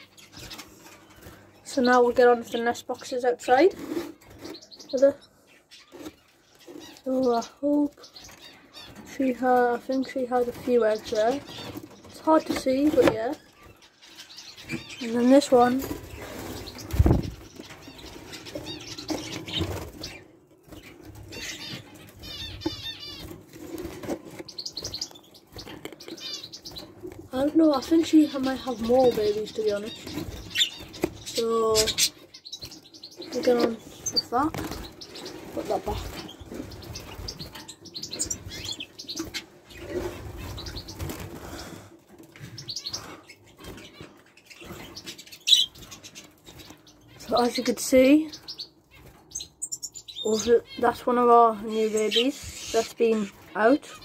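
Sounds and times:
bird chirping: 0:00.0 - 0:54.0
wings fluttering: 0:05.8 - 0:48.2
birds fluttering wings: 0:14.9 - 0:26.0, 0:32.6 - 0:42.7.

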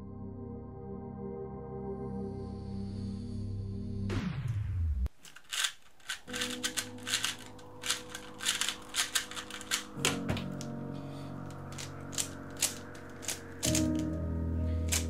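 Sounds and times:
background music chords: 0:00.0 - 0:05.0, 0:06.2 - 0:15.0
plastic clacking of puzzle cube: 0:05.1 - 0:10.7, 0:11.4 - 0:14.2.

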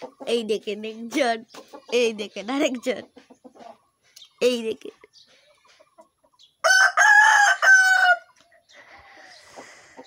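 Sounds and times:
rooster crowing: 0:06.6 - 0:08.3.

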